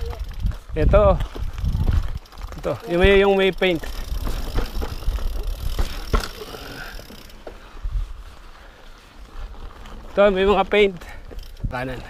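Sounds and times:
bike knocks and rattles: 0.0 - 7.6
bike tyres rumbling on rock: 0.0 - 8.4.

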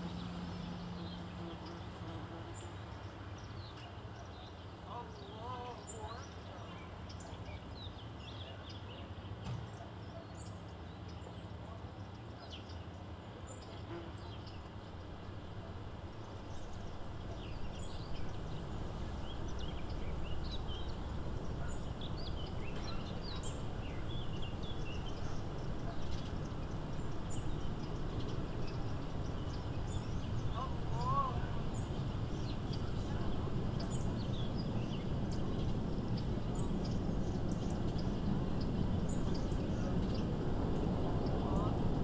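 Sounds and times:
small birds chirping: 0.0 - 42.0
low outdoor rumble: 10.8 - 42.0.

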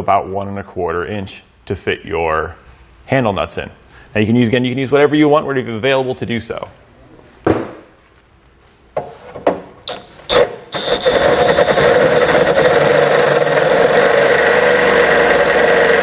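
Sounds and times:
power drill boring into metal: 9.9 - 16.0.

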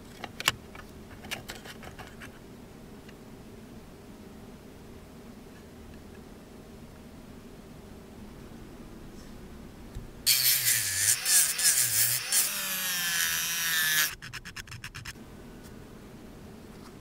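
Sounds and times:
rotary tool grinding whine: 10.3 - 15.2.

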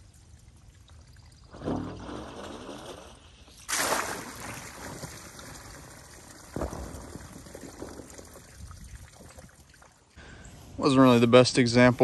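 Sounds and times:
water gushing onto concrete: 1.1 - 9.9.

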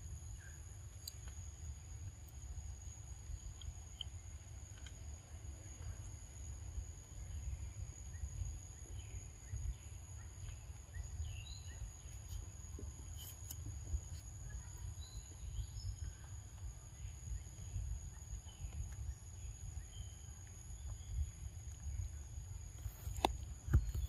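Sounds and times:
bird chirps: 7.2 - 13.5, 14.1 - 22.1.

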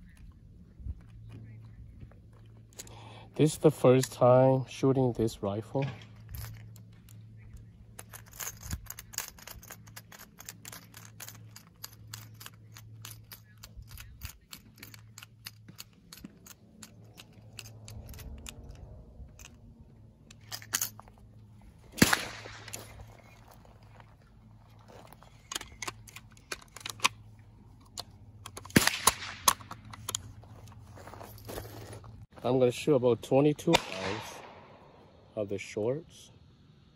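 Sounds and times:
cartridges clicking into magazine: 8.0 - 19.7, 25.3 - 30.4.

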